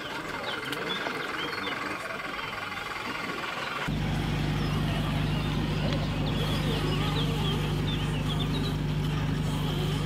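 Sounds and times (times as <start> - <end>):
low engine-like hum: 0.0 - 10.0
bird chirps: 3.6 - 8.9.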